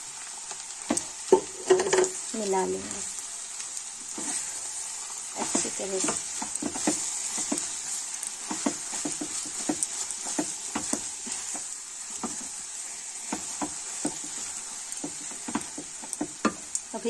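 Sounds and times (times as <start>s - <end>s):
vegetables sizzling in oil: 0.0s - 17.0s
spatula scraping pan: 4.1s - 16.6s.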